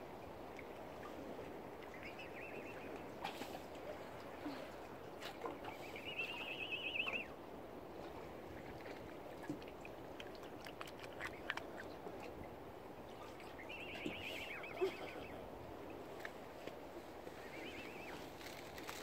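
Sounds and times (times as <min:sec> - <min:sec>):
bird trill: 0:06.0 - 0:07.3, 0:13.7 - 0:15.3, 0:17.5 - 0:18.2.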